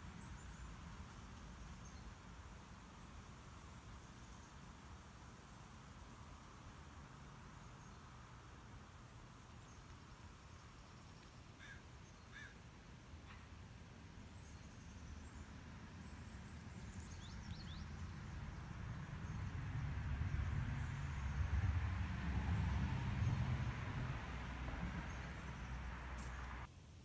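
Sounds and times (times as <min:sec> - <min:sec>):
bird calls: 0:10.8 - 0:12.6.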